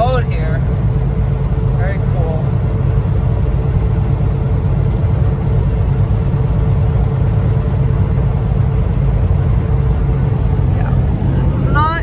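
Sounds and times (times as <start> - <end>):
diesel engine low rumble: 0.0 - 12.0.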